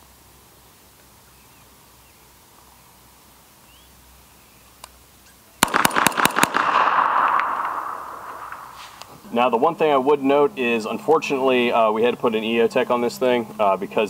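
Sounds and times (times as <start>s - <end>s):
rapid gunshots: 5.6s - 8.8s.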